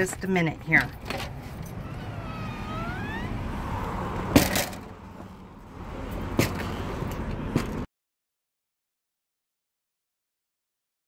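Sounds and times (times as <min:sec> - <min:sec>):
door squeaking open: 0:01.7 - 0:03.4.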